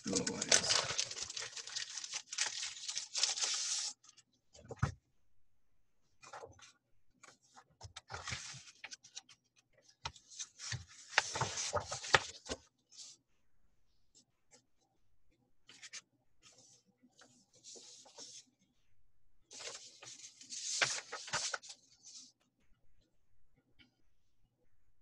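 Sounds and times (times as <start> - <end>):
plastic bag crinkling: 0.0 - 3.9
paper rustling: 0.0 - 4.2, 6.2 - 9.4, 10.0 - 13.1, 19.5 - 22.3.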